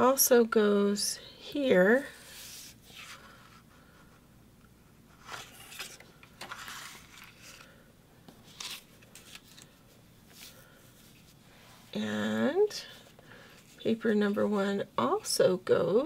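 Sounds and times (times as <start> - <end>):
paper rustles and scrapes: 2.2 - 3.7, 5.1 - 7.8, 8.4 - 11.4.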